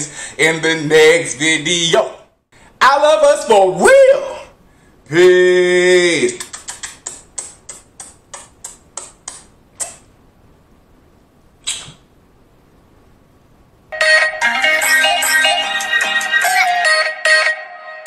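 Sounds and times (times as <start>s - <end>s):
outro music: 14.0s - 18.0s.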